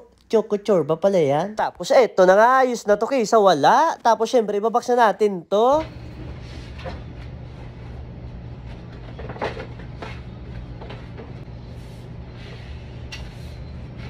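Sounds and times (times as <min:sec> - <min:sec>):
low machine hum: 0:05.6 - 0:14.0.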